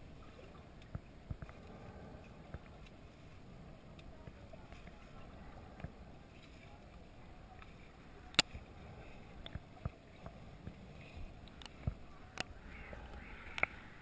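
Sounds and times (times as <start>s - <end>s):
low underwater rumble: 0.0s - 14.0s
sharp underwater clicks and knocks: 0.4s - 3.0s, 8.3s - 8.6s, 9.3s - 13.9s.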